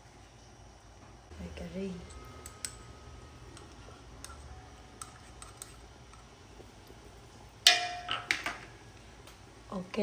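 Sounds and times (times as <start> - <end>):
utensil clanking on metal pot: 7.7 - 8.6.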